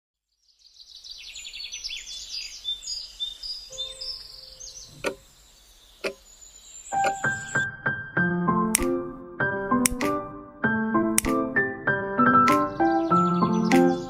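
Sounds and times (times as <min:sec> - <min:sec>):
birds chirping and trilling: 0:00.3 - 0:08.1, 0:12.2 - 0:14.0
sharp clicks: 0:04.9 - 0:05.2, 0:07.0 - 0:07.4, 0:08.7 - 0:09.0, 0:09.8 - 0:10.2, 0:11.2 - 0:11.4.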